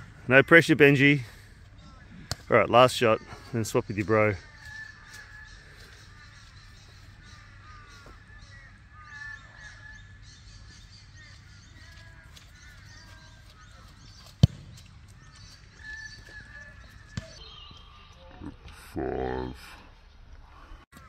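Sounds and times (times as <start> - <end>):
birds calling: 0.0 - 21.0
boot kicking football thud: 14.2 - 14.9, 17.1 - 17.4.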